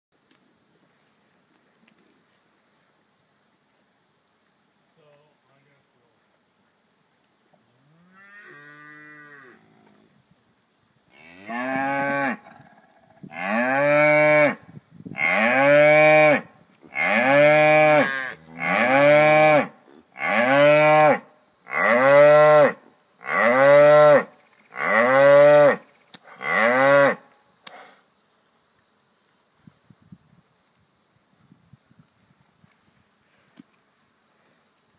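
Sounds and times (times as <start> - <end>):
cattle mooing: 15.2 - 22.7.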